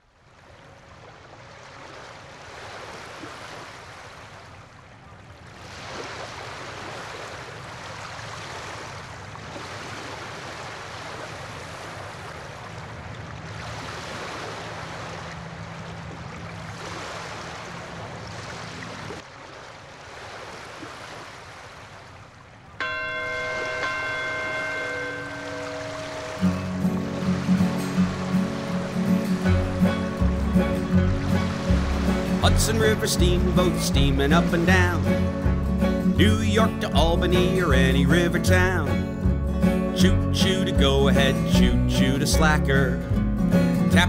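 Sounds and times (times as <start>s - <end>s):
rushing water: 0.0s - 44.0s
music track: 22.8s - 44.0s.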